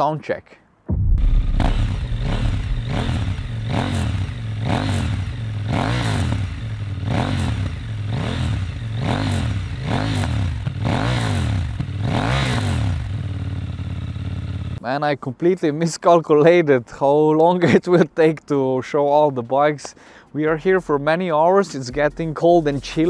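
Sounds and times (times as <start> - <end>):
motorcycle engine revving: 1.4 - 14.8.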